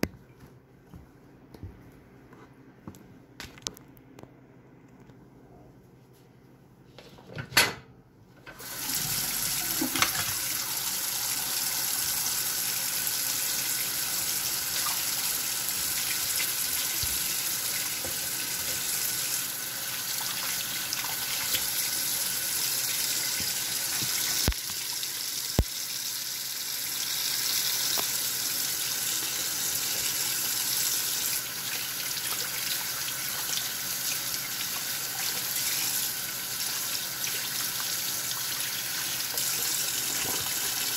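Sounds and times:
faucet water running into sink: 8.5 - 40.9.

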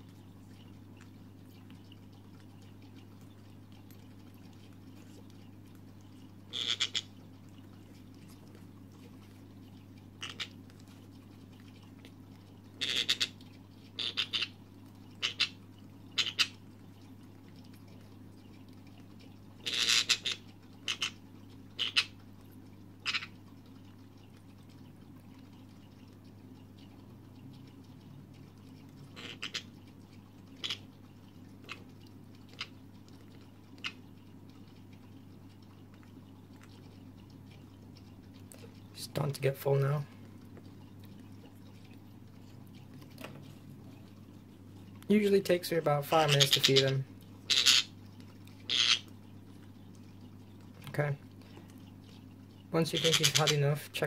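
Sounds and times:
steady low hum: 0.0 - 54.0
parrot chick begging calls: 6.5 - 7.1, 12.8 - 13.3, 14.0 - 14.5, 16.2 - 16.5, 47.5 - 47.9, 48.7 - 49.1.

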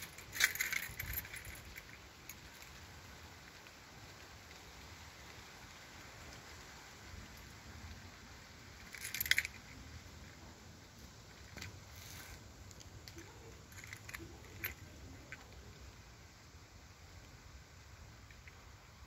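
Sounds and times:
rattling clatter: 0.0 - 2.0
outdoor hiss: 0.0 - 19.0.

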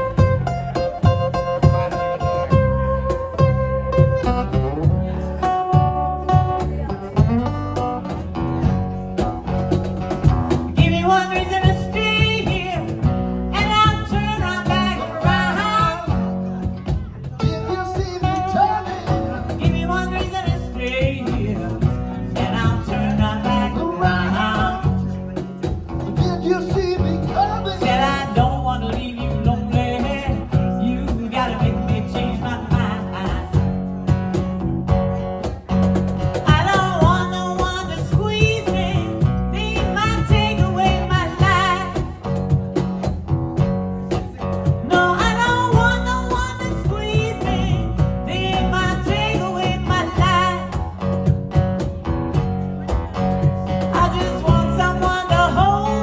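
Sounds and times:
live band playing: 0.0 - 56.0
woman singing: 10.8 - 25.4, 26.2 - 33.8, 36.4 - 42.4, 44.8 - 51.0, 53.1 - 56.0.

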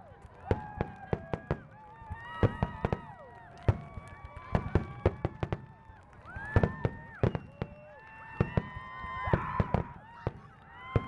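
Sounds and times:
spectators whooping: 0.0 - 11.0
fireworks bursting with sharp bangs: 0.1 - 11.0.

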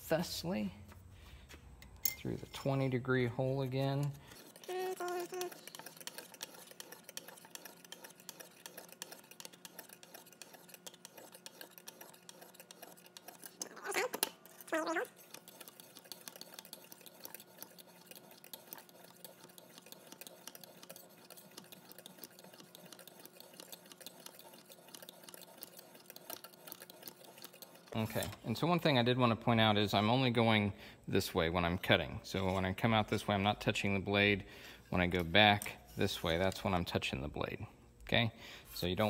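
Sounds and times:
hone stone scraping knife edge: 3.5 - 28.4.

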